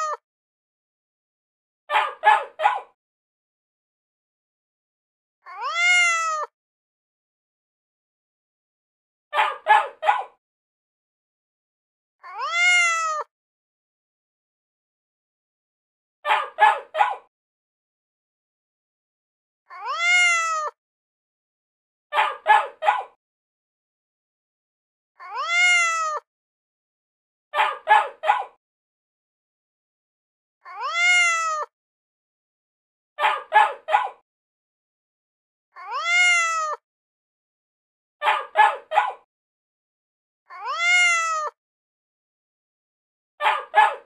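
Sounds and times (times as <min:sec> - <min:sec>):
cat meowing: 0:00.0 - 0:00.2, 0:05.5 - 0:06.5, 0:12.2 - 0:13.3, 0:19.7 - 0:20.8, 0:25.2 - 0:26.2, 0:30.7 - 0:31.7, 0:35.8 - 0:36.8, 0:40.5 - 0:41.6.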